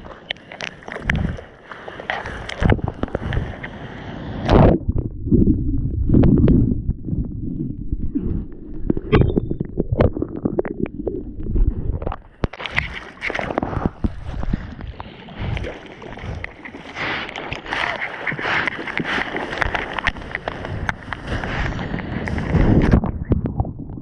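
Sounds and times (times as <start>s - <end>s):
water churning and splashing: 0.0s - 24.0s
arm paddling through water: 4.4s - 23.5s.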